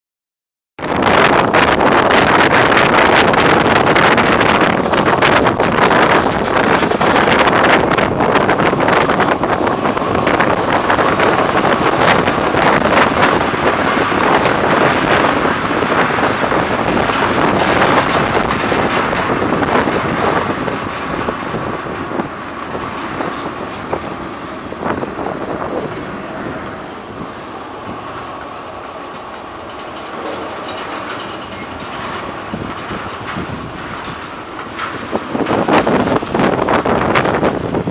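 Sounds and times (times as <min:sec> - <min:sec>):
freight train rolling past: 0:00.8 - 0:37.9
steel wheels clicking on rail: 0:01.0 - 0:37.9.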